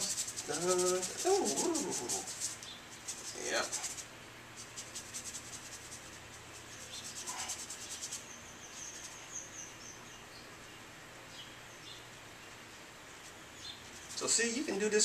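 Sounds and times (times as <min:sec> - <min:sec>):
paintbrush scrubbing on canvas: 0:00.0 - 0:08.3, 0:13.2 - 0:15.0.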